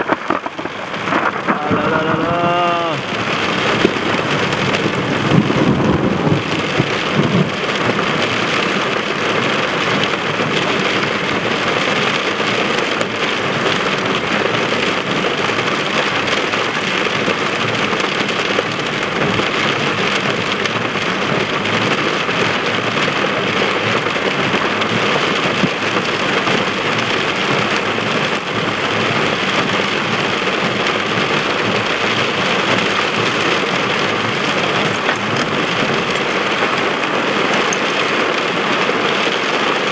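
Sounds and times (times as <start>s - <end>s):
low thunder rumble: 0.0s - 8.8s
heavy rain pouring: 0.0s - 39.9s.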